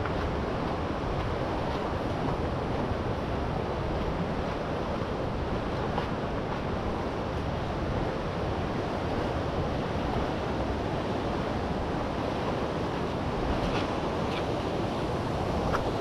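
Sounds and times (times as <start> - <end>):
whitewater river rushing: 0.1 - 16.0.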